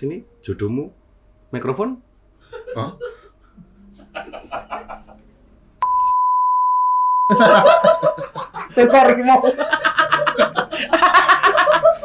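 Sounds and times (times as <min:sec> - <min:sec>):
people laughing: 0:02.5 - 0:03.3, 0:03.9 - 0:05.4, 0:07.3 - 0:12.0
high-pitched censor beep: 0:05.8 - 0:07.4.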